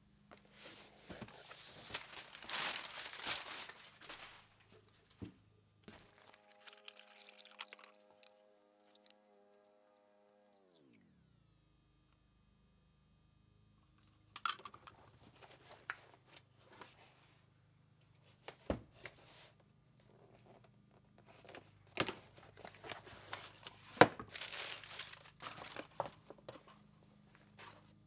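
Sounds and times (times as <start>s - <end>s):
packing paper crinkling: 0.6s - 5.0s, 5.9s - 8.3s, 21.9s - 26.4s
cardboard box being opened: 22.4s - 26.7s.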